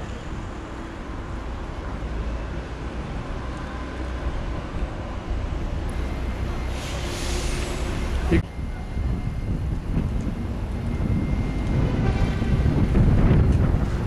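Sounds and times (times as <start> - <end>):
city traffic rumble: 0.0 - 14.0
high hissing rush: 6.0 - 8.4.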